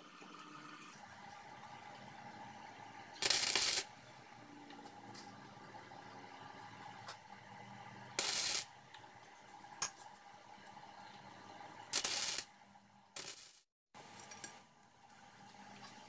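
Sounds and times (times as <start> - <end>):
arc welder crackling: 3.1 - 4.0, 8.2 - 8.8, 11.9 - 12.5, 13.2 - 13.7.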